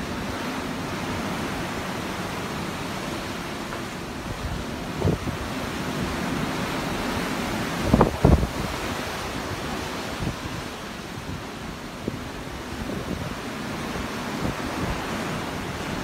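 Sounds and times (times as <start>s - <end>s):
waves breaking: 0.0s - 16.0s.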